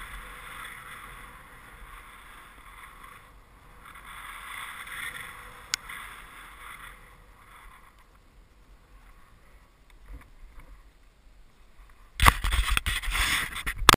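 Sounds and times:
skis hissing over snow: 0.0s - 9.8s, 12.4s - 13.7s.

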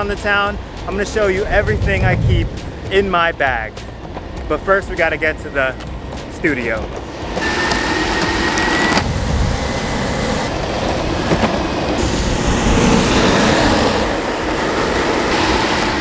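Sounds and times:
skateboard wheels rolling on asphalt: 0.0s - 5.1s, 5.8s - 16.0s.

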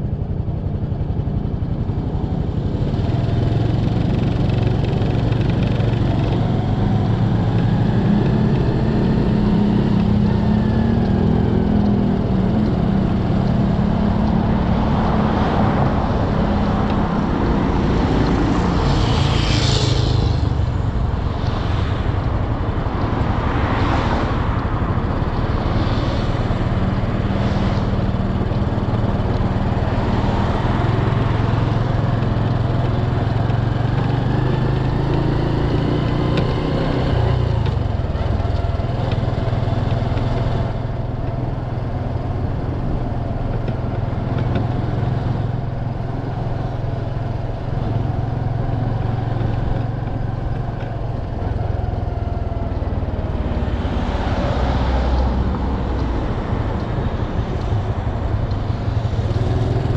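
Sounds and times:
motorcycle engine running: 0.0s - 59.9s
wind noise on microphone: 2.2s - 32.3s
brief rushes of noise: 18.6s - 20.9s.

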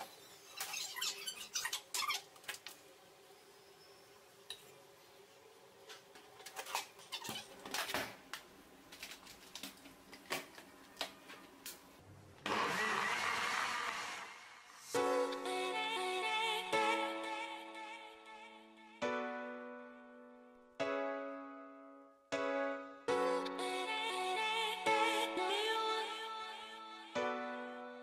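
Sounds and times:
electric blender running: 12.4s - 14.6s.

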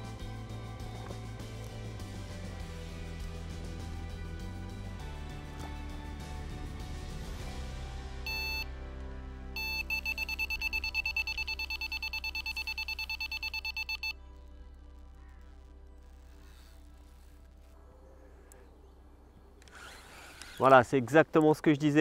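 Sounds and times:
background music: 0.0s - 22.0s
electronic bite alarm beeping: 8.3s - 8.7s, 9.6s - 14.2s.

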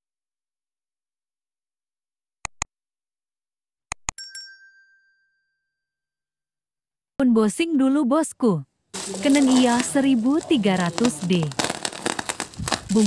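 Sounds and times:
mouse clicks: 2.4s - 2.7s, 3.9s - 4.2s
bell ding: 4.2s - 6.1s.

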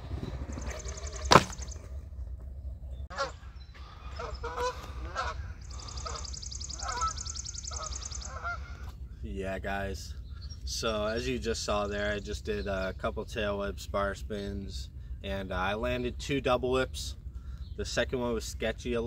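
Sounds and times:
scooter landing on concrete: 0.1s - 1.9s
geese honking: 3.1s - 9.0s.

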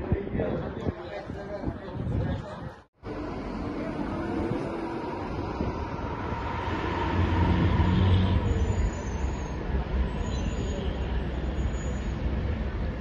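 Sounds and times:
bus engine rumble driving past: 3.0s - 13.0s
road traffic rumble: 3.0s - 13.0s.

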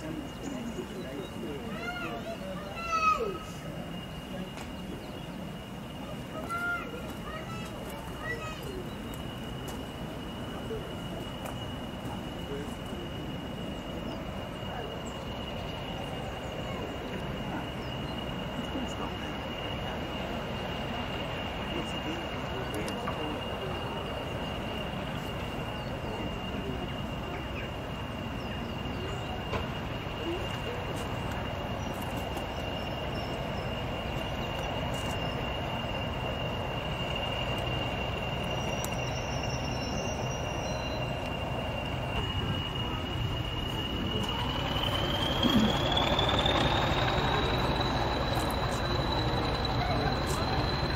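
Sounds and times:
diesel engine rumbling: 0.0s - 50.9s
high-pitched whistle: 32.8s - 50.9s.

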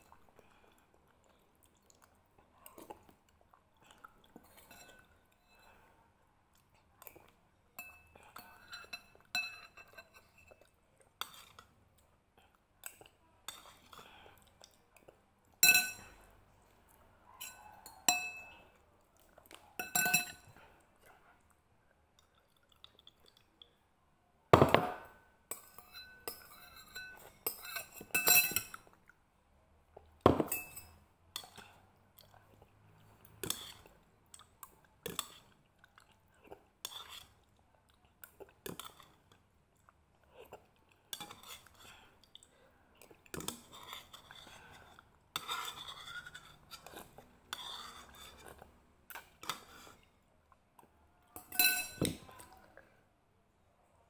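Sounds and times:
chewing and eating noises: 0.0s - 24.0s, 31.3s - 51.4s
utensils clinking on ceramic bowl: 7.8s - 10.6s, 15.6s - 16.3s, 17.4s - 18.6s, 19.8s - 20.6s, 24.6s - 28.9s, 30.3s - 31.6s, 51.4s - 52.5s.

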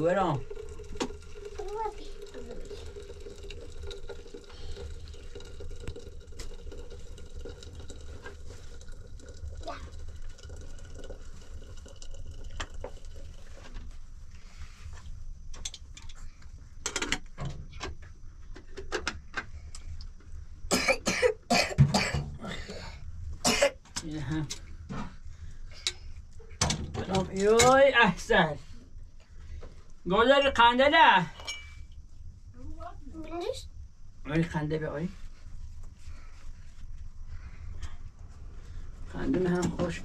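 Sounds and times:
person coughing: 20.7s - 23.8s.

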